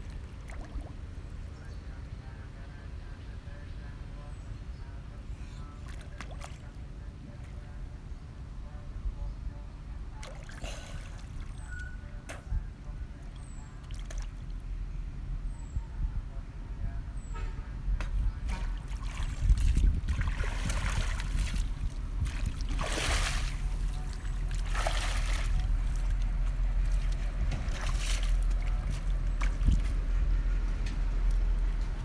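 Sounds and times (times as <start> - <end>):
wading splashes in river: 0.0 - 1.2, 5.8 - 7.6, 10.2 - 12.0, 13.2 - 14.6, 18.5 - 30.0.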